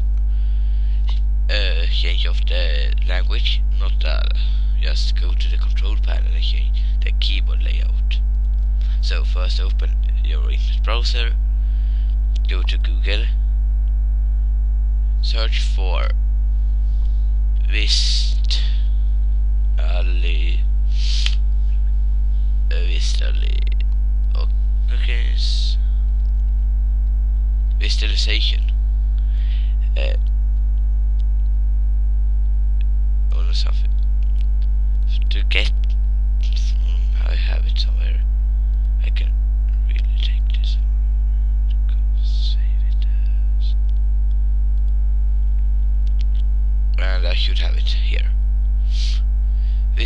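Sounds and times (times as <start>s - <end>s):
electrical mains hum: 0.0s - 50.0s.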